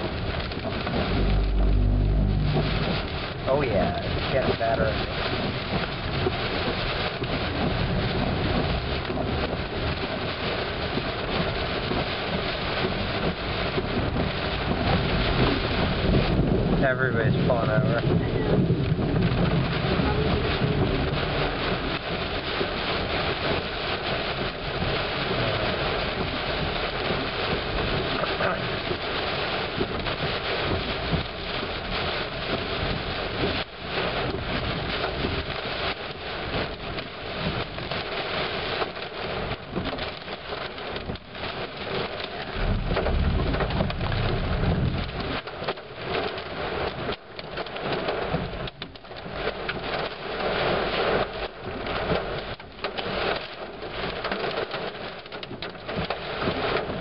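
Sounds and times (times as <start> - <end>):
low rumble: 0.0 - 38.2, 39.3 - 46.2
heavy rain on car roof: 0.0 - 57.0.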